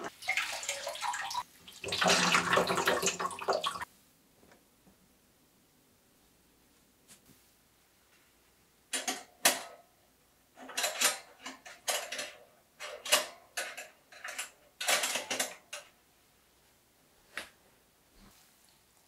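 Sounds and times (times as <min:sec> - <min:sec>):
metal clothespins clinking and rattling: 0:10.6 - 0:15.9.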